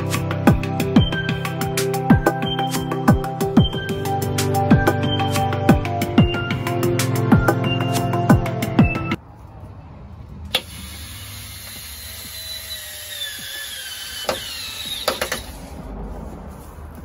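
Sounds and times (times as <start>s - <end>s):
drill clicks: 10.5s - 15.6s
cordless drill motor whine: 10.6s - 15.6s.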